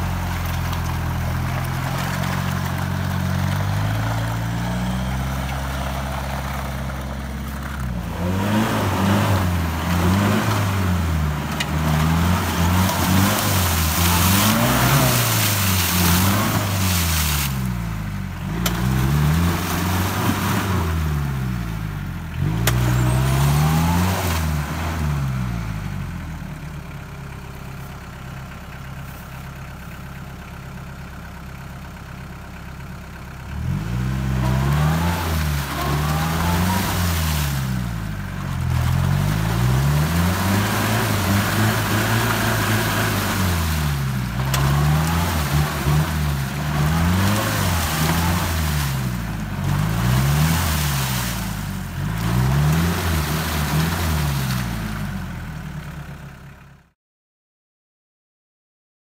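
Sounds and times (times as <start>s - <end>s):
off-road vehicle engine revving: 0.0s - 26.7s, 33.4s - 56.2s
tyres churning through mud: 0.0s - 31.3s, 33.4s - 55.8s.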